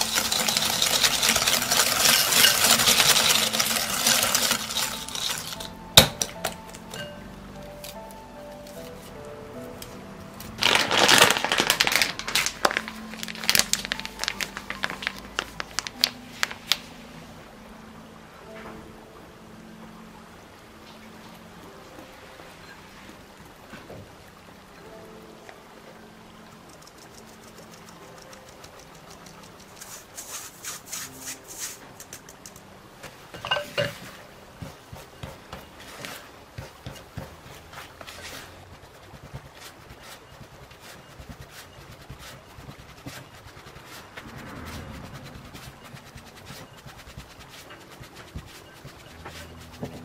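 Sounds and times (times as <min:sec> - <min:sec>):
flour pouring into glass bowl: 0:00.0 - 0:05.7, 0:10.6 - 0:16.8
flour sifting through mesh sieve: 0:00.0 - 0:05.8, 0:10.6 - 0:17.1, 0:27.0 - 0:32.5, 0:33.4 - 0:50.0
metal clinking on glass bowl: 0:00.0 - 0:07.2, 0:33.3 - 0:34.1.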